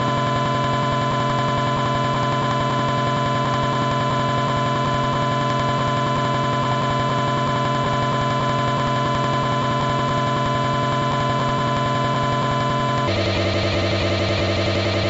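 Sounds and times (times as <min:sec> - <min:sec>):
noise drone: 0:10.8 - 0:15.0.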